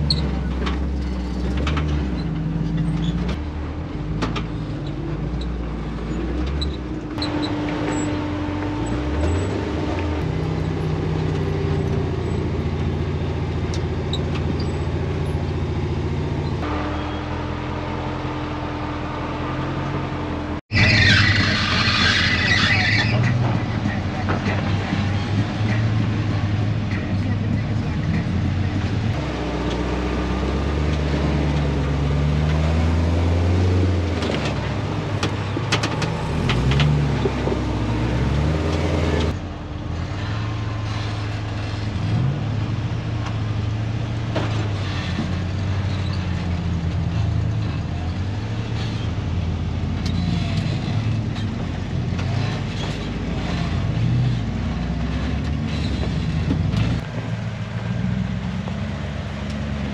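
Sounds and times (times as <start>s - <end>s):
truck engines revving low: 0.0s - 59.9s.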